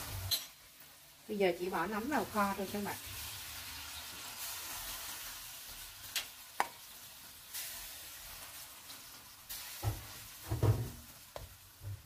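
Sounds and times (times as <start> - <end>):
mushrooms sizzling in a pan: 0.0 - 12.0
spatula stirring in a pan: 2.4 - 11.8.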